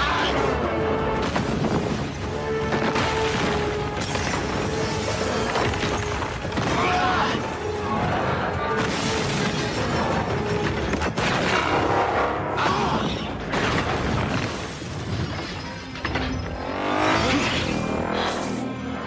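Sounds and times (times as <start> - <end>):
film music score: 0.0 - 19.0.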